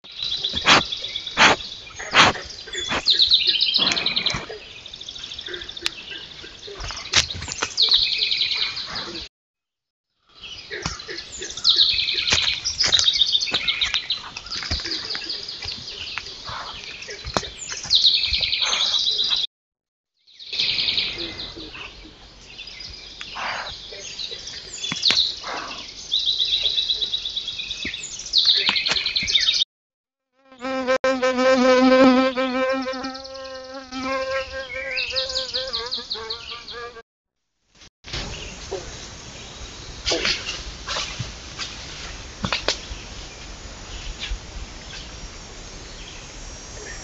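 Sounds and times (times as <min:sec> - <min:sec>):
birds singing with trills: 0:00.1 - 0:09.3, 0:10.3 - 0:19.5, 0:20.3 - 0:29.6, 0:32.9 - 0:37.0
insect buzzing: 0:30.4 - 0:37.0.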